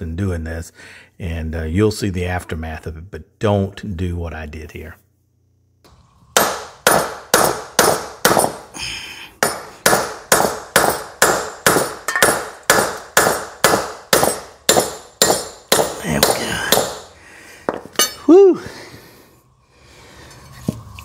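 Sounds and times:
hammer striking metal shaft: 9.4s - 17.1s, 17.9s - 18.3s.

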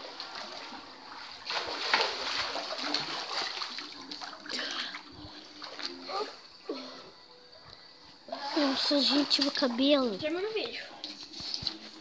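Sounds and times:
water splashing in pool: 0.0s - 6.4s, 8.3s - 10.5s.

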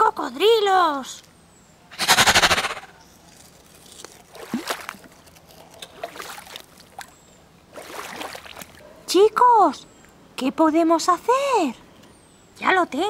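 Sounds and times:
water splashing and sloshing: 3.9s - 8.9s.

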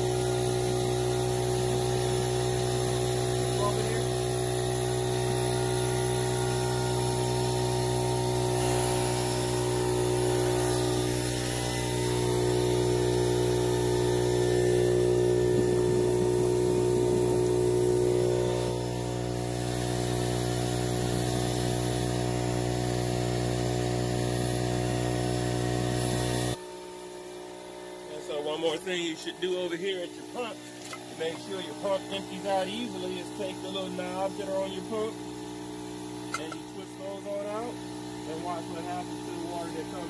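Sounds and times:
air compressor running: 0.0s - 40.0s
air hissing: 4.9s - 22.1s.

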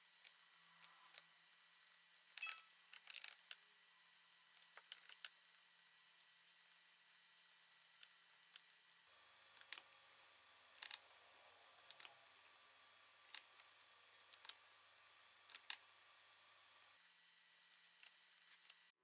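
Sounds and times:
computer mouse clicks: 9.6s - 9.9s, 11.8s - 12.2s, 13.3s - 14.6s, 15.4s - 15.9s.

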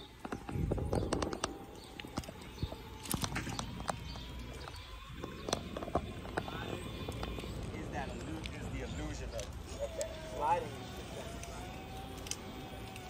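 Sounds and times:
wind rumble on microphone: 0.2s - 8.7s.

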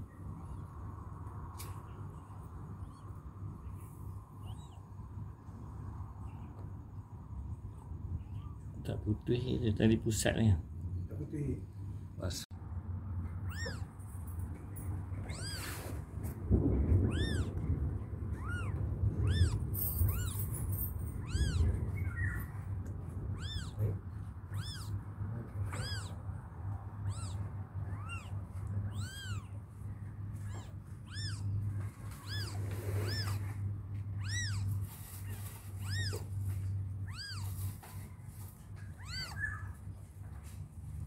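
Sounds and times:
kittens mewing: 2.1s - 5.2s, 13.3s - 14.0s, 15.1s - 40.0s.

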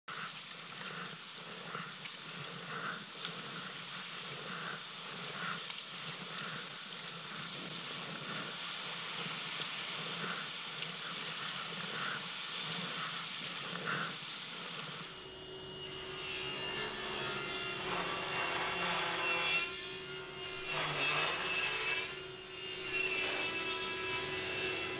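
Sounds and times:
hiss of moving sea water: 0.1s - 15.1s.

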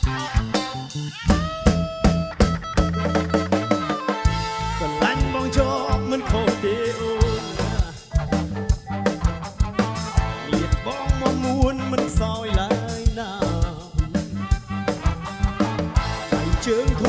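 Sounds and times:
drum kit beat: 0.0s - 17.0s
person singing: 4.6s - 8.6s, 10.3s - 15.5s, 16.2s - 17.0s.

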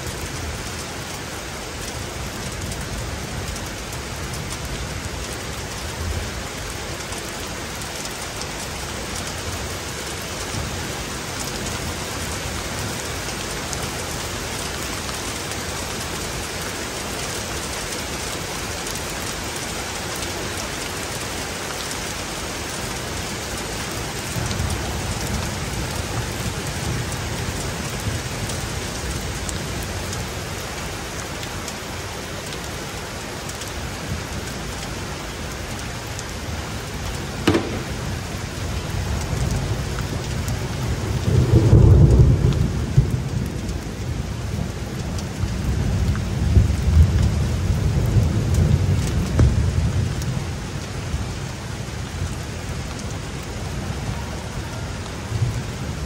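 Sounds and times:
heavy rain splashing: 0.0s - 56.0s
thunder rumble: 37.4s - 39.9s.

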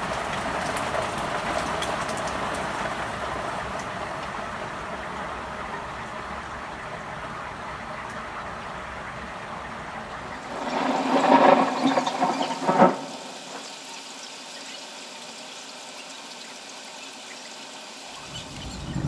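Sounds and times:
heavy rain: 0.0s - 17.0s, 17.6s - 19.0s
rushing sound with faint whine: 9.7s - 15.2s.

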